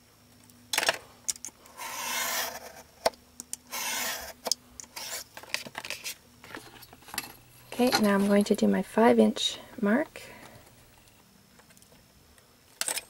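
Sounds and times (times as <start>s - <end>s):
craft knife cutting board: 1.8s - 3.1s, 3.7s - 5.3s.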